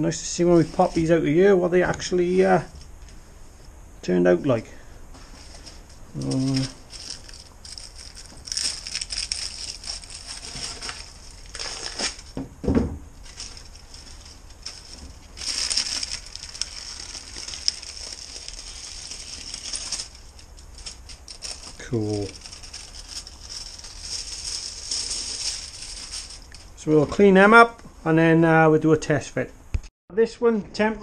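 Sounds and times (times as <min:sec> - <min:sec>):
aluminium foil crinkling and tearing: 0:05.5 - 0:12.4, 0:13.2 - 0:26.7
thump: 0:12.4 - 0:13.0.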